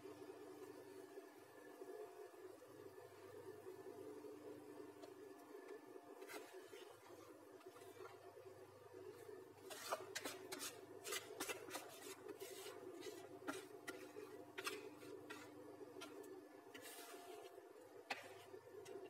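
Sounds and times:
spatula scraping a plastic bowl: 0:06.2 - 0:08.2, 0:09.6 - 0:19.0.

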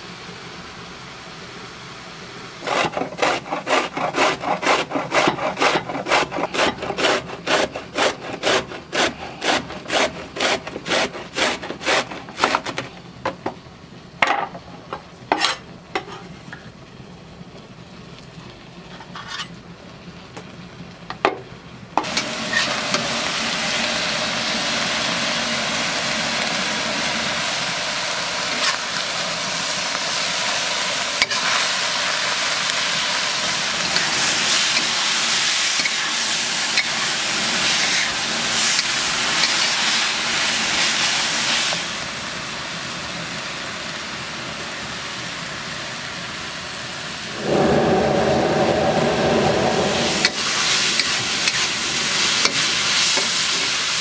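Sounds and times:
food sizzling in a wok: 0:00.0 - 0:54.0
vegetable rasped on metal grater: 0:02.6 - 0:12.8.

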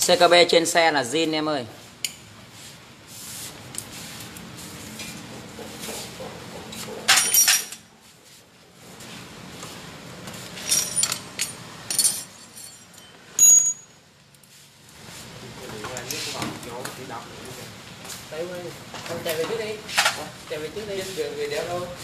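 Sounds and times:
metal tools clinking: 0:07.0 - 0:07.9, 0:10.4 - 0:14.0.

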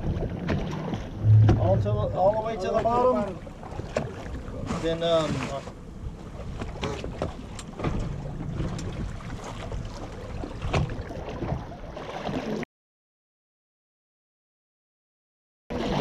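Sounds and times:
boat rumble and water noise: 0:00.0 - 0:12.6, 0:15.7 - 0:16.0
knocks and clicks: 0:01.2 - 0:02.2
wind buffeting microphone: 0:01.2 - 0:04.6.

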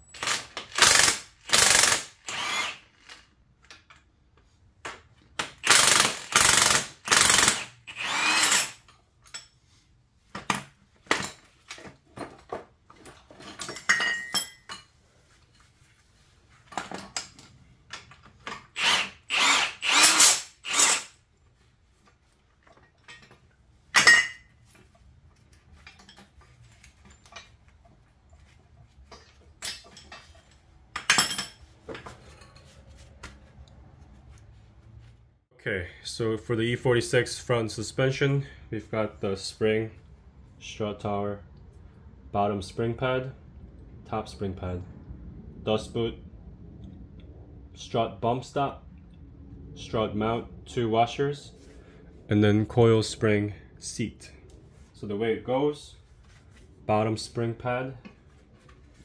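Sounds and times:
power tool bursts: 0:00.2 - 0:02.9, 0:05.6 - 0:08.8, 0:18.7 - 0:21.2.

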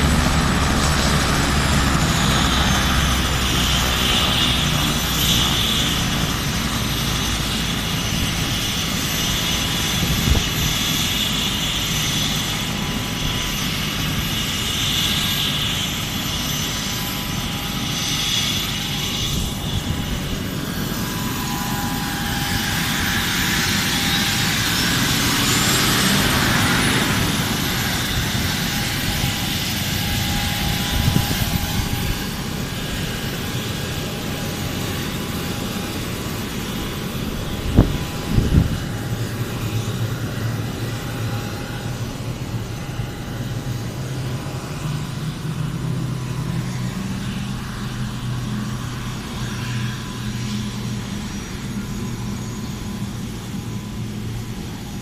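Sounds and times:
airplane engine climbing: 0:00.0 - 0:55.0.

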